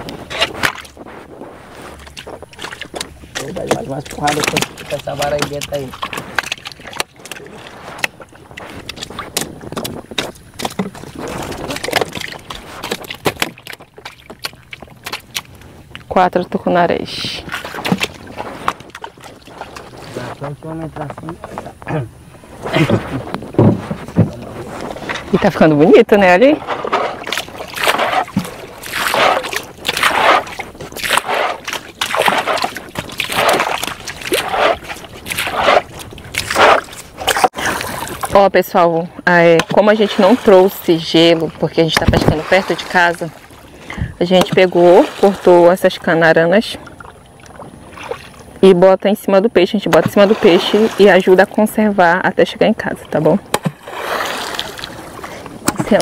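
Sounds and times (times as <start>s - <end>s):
water splashes: 0.0s - 56.0s
knocks on wooden canoe: 23.5s - 24.4s.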